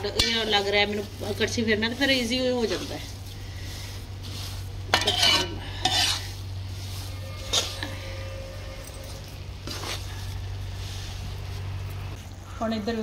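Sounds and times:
ladle scraping a pan: 2.2s - 11.7s.

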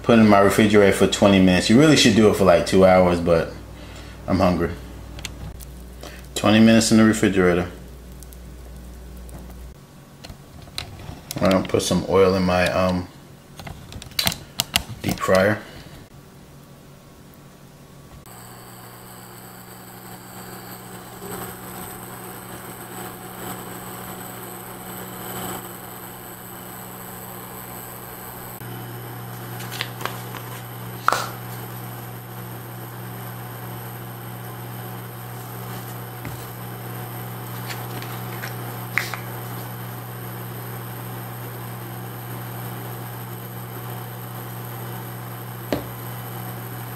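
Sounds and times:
cooktop fan hum: 0.0s - 46.9s
faint high electrical whine: 0.0s - 46.9s
onions sizzling in frying pan: 18.3s - 46.9s.

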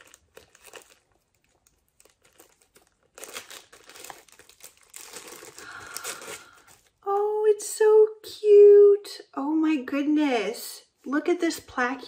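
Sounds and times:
wrapping crinkling and rustling: 0.0s - 7.2s.

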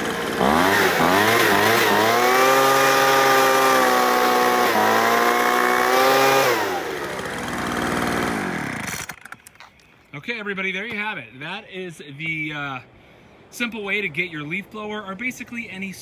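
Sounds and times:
leaf blower engine revving: 0.0s - 9.3s.

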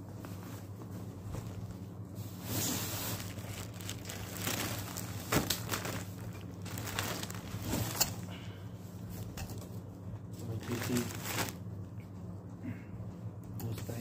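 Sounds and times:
plastic wrapping crinkling: 1.3s - 8.3s, 10.4s - 11.7s
packing tape tearing: 3.0s - 8.2s.

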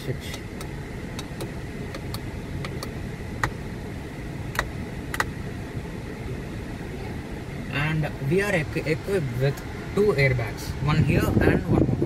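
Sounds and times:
steady low rumble: 0.0s - 12.0s
push-button switch clicks: 0.3s - 3.6s.

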